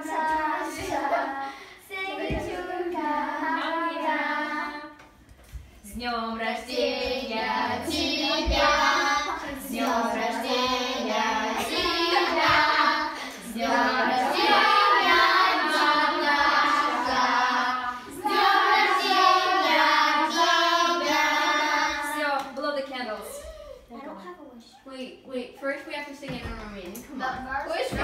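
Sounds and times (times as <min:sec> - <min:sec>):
children and adults singing: 0:00.0 - 0:05.2, 0:05.8 - 0:22.5.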